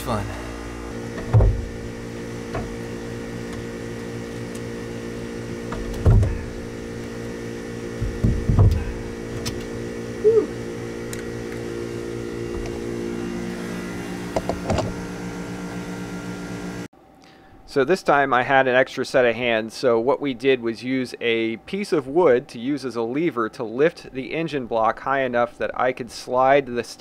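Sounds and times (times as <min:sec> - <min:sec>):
machinery hum: 0:00.0 - 0:27.0
knocks and clunks of tools: 0:05.7 - 0:06.5, 0:08.0 - 0:09.7.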